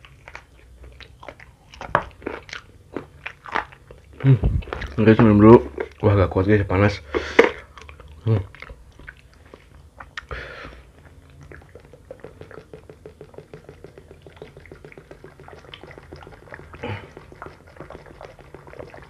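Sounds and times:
person gulping water: 0:07.4 - 0:19.0.

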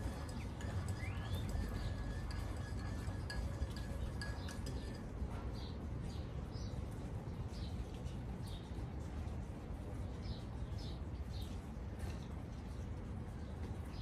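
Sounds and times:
birds chirping: 0:00.0 - 0:08.7.

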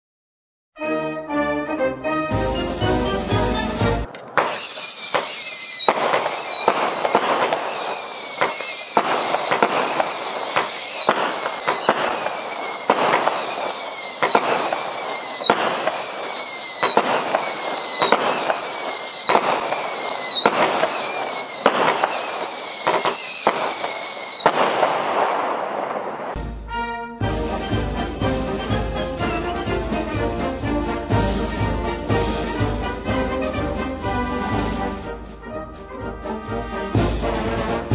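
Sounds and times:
shrill firework whistles: 0:02.5 - 0:26.4
firework shots reports: 0:02.7 - 0:26.4.

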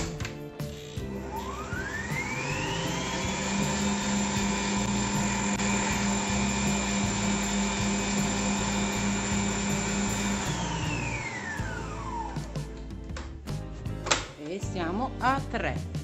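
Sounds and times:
stand mixer motor whining: 0:01.0 - 0:12.5.

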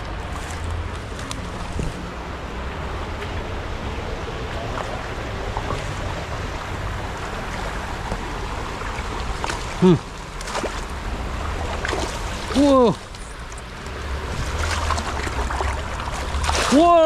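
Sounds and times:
flowing river water: 0:00.0 - 0:17.0
wind rumbling on microphone: 0:00.0 - 0:17.0
landing net swept through water: 0:14.4 - 0:16.8.

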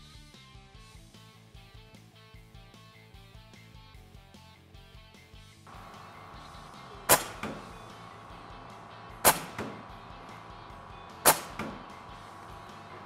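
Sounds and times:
air rifle shots: 0:05.7 - 0:13.0
sharp crack: 0:05.7 - 0:13.0.

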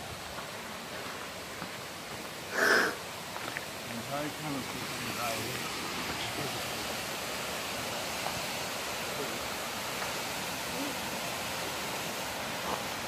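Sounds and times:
waterfall and creek rushing: 0:00.0 - 0:13.0.

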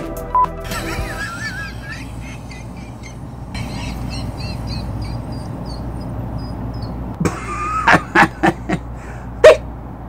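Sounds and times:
steady low hum: 0:00.7 - 0:10.0
faint high chirping: 0:01.9 - 0:07.1.

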